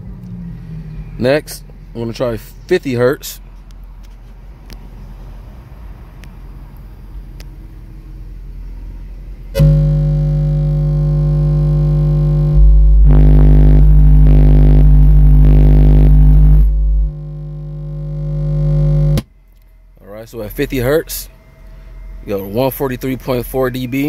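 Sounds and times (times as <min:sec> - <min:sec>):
deep bass test tone: 0:09.5 - 0:19.2.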